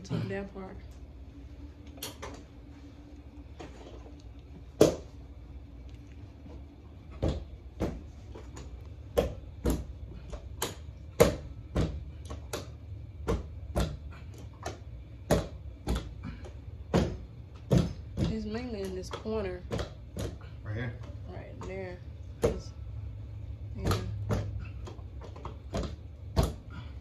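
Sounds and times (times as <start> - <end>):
knee kicker knocking: 15.2 - 20.4.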